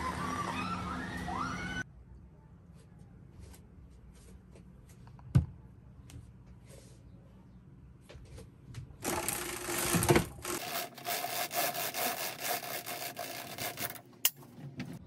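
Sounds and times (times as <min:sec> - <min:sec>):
roller blind rattling up: 0:09.0 - 0:14.0.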